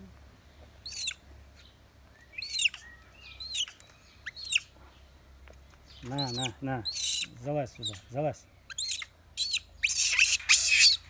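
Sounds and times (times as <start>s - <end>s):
monkey screaming shrilly: 6.2s - 7.4s, 8.7s - 11.0s.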